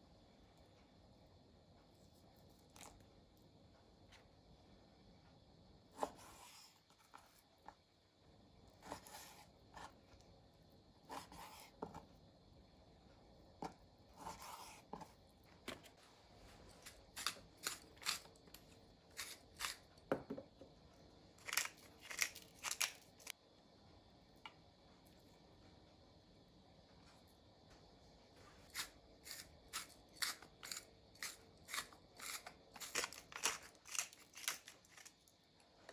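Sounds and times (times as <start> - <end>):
knife scraping and tearing meat: 16.8 - 19.8, 21.4 - 23.3, 28.7 - 35.2.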